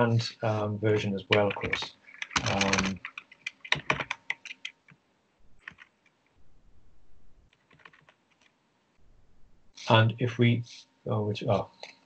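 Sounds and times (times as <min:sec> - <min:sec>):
computer keyboard typing: 0:01.3 - 0:05.0, 0:05.6 - 0:06.1, 0:07.5 - 0:08.5.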